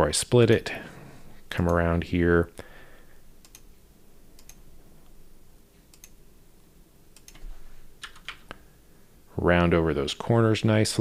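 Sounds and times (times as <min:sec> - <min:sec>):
low room hum: 0:00.0 - 0:11.0
computer mouse clicks: 0:03.4 - 0:03.7, 0:04.3 - 0:04.6, 0:05.8 - 0:06.2, 0:07.2 - 0:08.6.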